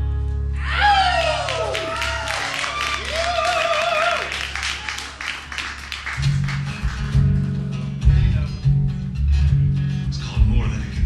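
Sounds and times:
cheering: 0:00.6 - 0:06.0
audience clapping: 0:01.0 - 0:07.9
acoustic guitar strumming: 0:06.2 - 0:11.0.

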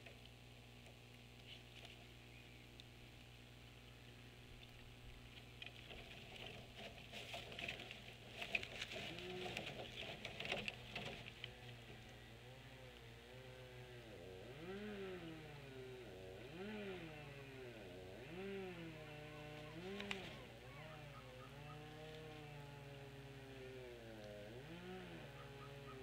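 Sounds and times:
steady low hum: 0:00.0 - 0:26.0
faint cycling motor: 0:07.8 - 0:26.0.

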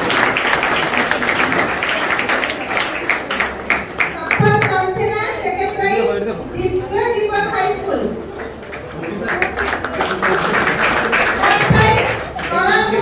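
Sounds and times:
crowd applauding in a hall: 0:00.0 - 0:04.9, 0:08.3 - 0:13.0
woman speaking into a microphone: 0:04.2 - 0:08.2, 0:11.4 - 0:13.0.

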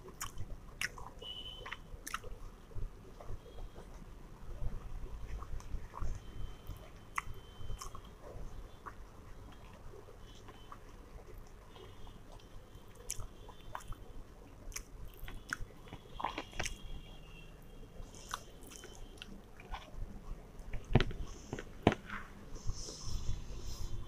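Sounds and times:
person chewing food: 0:00.0 - 0:17.1, 0:18.0 - 0:23.9
wet mouth clicks and smacks: 0:00.2 - 0:02.4, 0:14.7 - 0:16.8.

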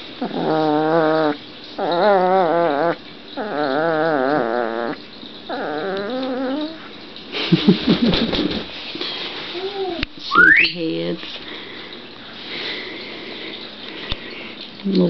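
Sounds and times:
puppy growling: 0:00.0 - 0:06.9.

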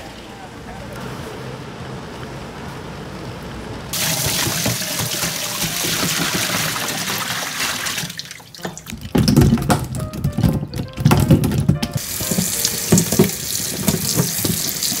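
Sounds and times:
water gushing into metal sink: 0:03.9 - 0:09.6, 0:12.0 - 0:15.0.

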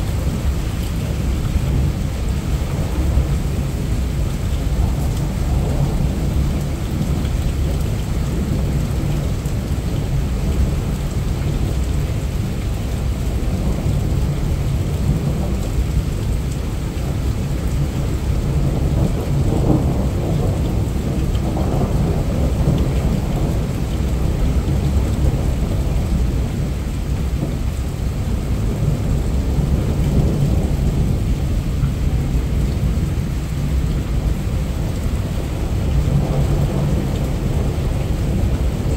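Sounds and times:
heavy rain falling: 0:00.0 - 0:38.9.

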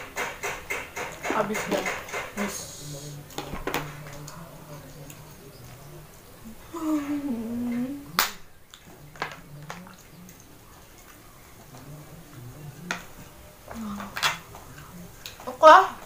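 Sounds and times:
wordless vocal sound: 0:04.0 - 0:08.3.

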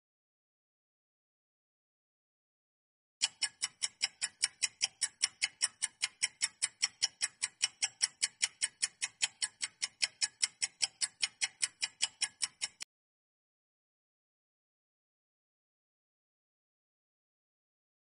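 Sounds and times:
fast clock ticking: 0:03.2 - 0:12.9.

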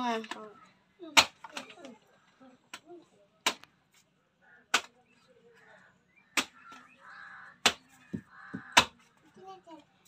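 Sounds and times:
blade chopping fruit husk: 0:07.6 - 0:09.0.

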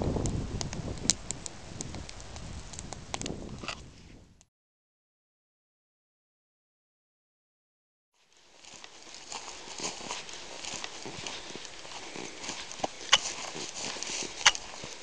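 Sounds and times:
footsteps through brush: 0:08.2 - 0:15.0
legs rustling through heather: 0:08.2 - 0:15.0.

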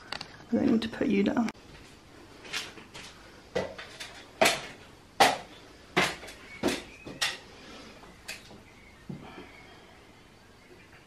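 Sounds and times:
feet on metal stepladder: 0:01.8 - 0:09.5.

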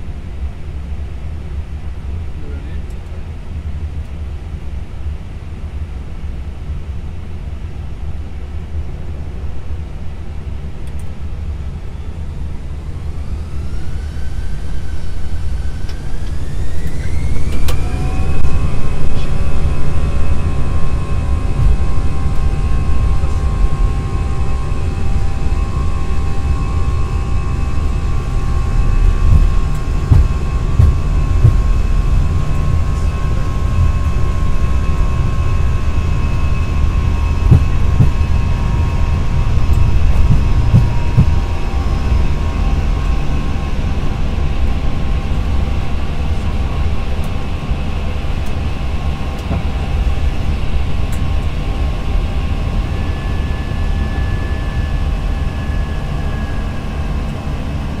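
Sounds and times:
wheels rumbling on runway: 0:00.0 - 0:58.0
jet engines spooling up: 0:11.0 - 0:58.0.

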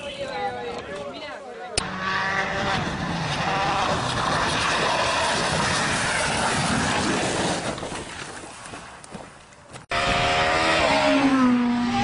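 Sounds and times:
rally car engine: 0:01.8 - 0:07.6, 0:09.9 - 0:12.0
tyres on gravel: 0:03.8 - 0:09.9.

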